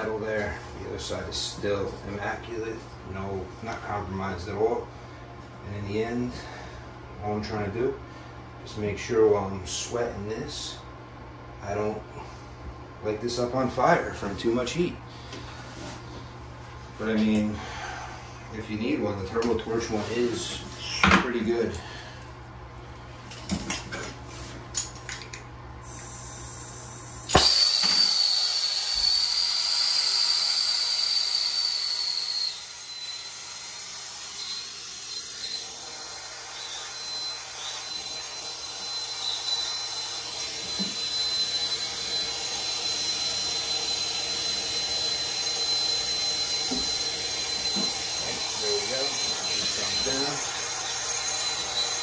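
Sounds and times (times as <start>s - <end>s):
gas torch hissing and whistling: 25.8s - 52.0s
gas torch lighting pop: 27.2s - 28.2s.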